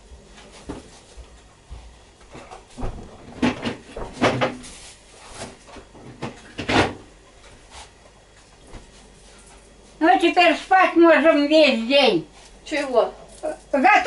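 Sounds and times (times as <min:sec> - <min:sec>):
knocking and clatter in kitchen: 0:01.8 - 0:04.7, 0:05.7 - 0:07.1.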